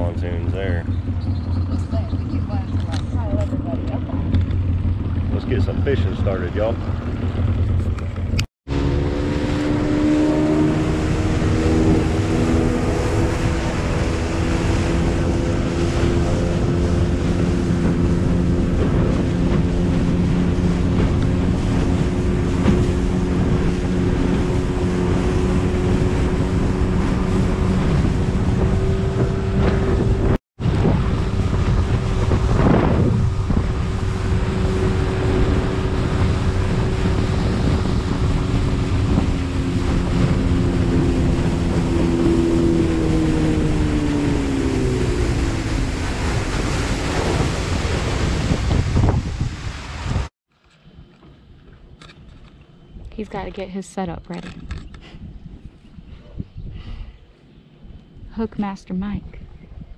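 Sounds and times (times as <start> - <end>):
wind buffeting microphone: 0.0 - 50.3, 50.9 - 59.9
outboard motor running: 0.0 - 59.8.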